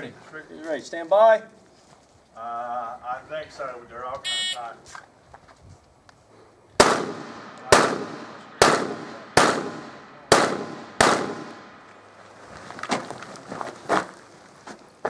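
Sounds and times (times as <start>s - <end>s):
pistol shots echoing: 6.8s - 11.8s.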